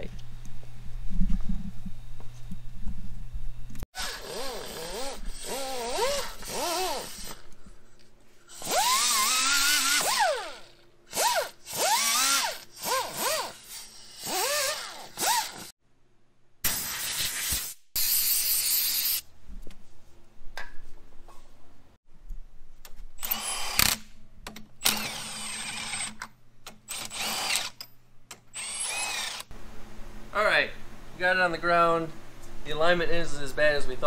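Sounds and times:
cordless impact wrench whine: 4.0 - 7.5, 8.5 - 15.7, 23.2 - 24.1, 24.8 - 29.5.

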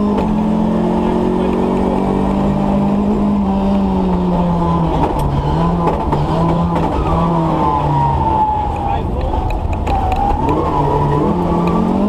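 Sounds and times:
car engine at high revs: 0.0 - 12.0.

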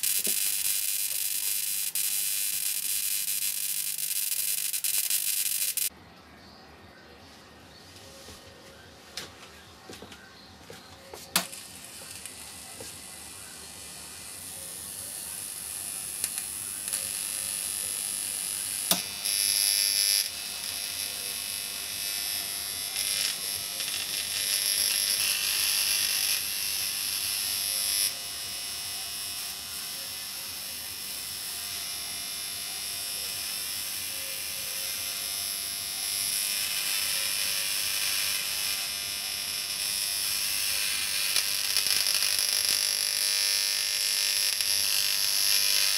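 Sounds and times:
electric discharge buzzing: 0.0 - 5.9, 11.3 - 45.9
magnesium burning: 0.0 - 5.9, 11.3 - 45.9
sharp electric crack: 0.0 - 5.9, 11.4 - 27.1, 36.3 - 45.9.

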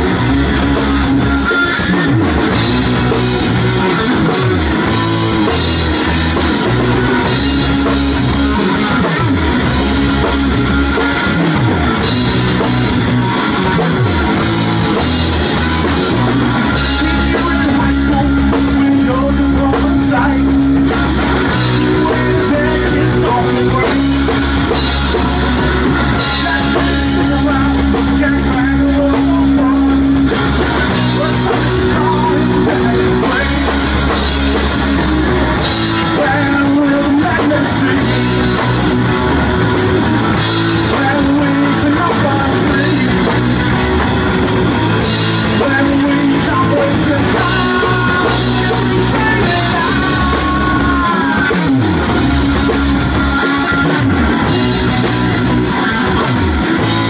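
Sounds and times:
live rock band playing: 0.0 - 57.0
person singing: 13.3 - 35.0, 35.6 - 38.9, 40.5 - 43.6, 45.1 - 54.0.

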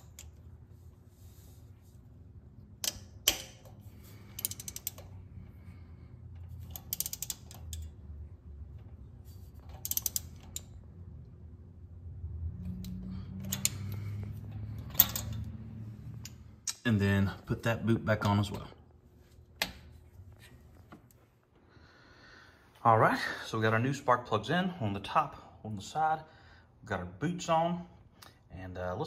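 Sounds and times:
ratchet wrench clicking: 2.8 - 5.2, 6.4 - 8.0, 9.6 - 10.8, 12.8 - 15.5.

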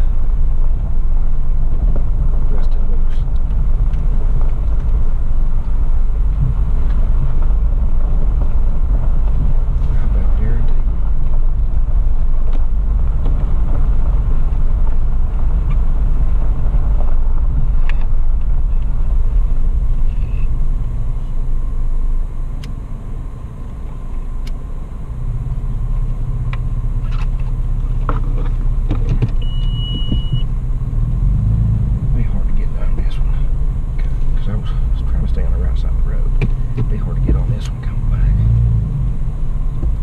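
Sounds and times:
engine and tyres rumbling: 0.0 - 40.0
body and suspension clicks and knocks: 1.6 - 20.6, 26.0 - 30.6, 33.0 - 38.7, 39.4 - 40.0.

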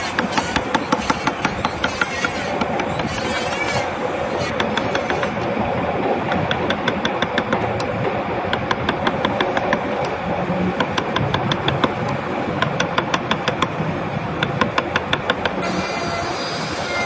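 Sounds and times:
mallet striking chisel: 0.0 - 3.3, 4.4 - 5.3, 12.6 - 13.7, 14.4 - 15.7
steady background noise: 0.0 - 17.0.

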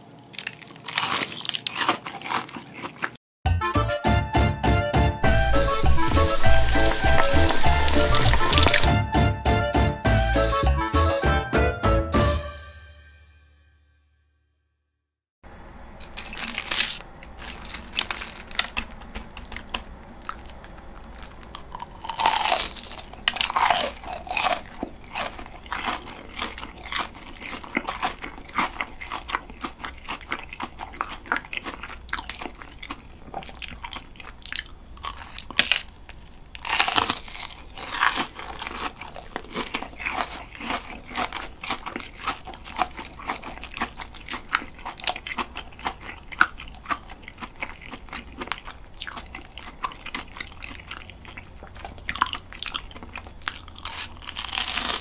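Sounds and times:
crunchy fried shrimp being chewed: 0.0 - 3.2, 5.7 - 8.9, 16.0 - 55.0.

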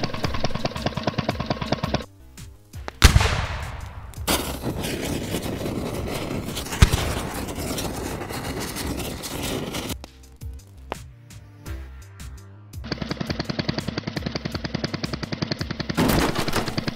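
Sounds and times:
crackling fire with pops: 0.0 - 11.2.

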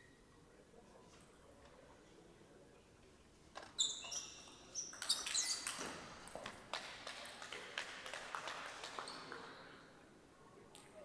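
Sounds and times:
shoes squeaking on floor: 3.6 - 6.1.

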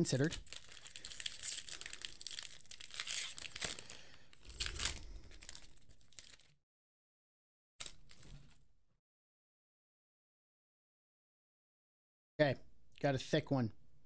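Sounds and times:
plastic wrapper tearing and crinkling: 0.1 - 6.6, 7.8 - 8.6.

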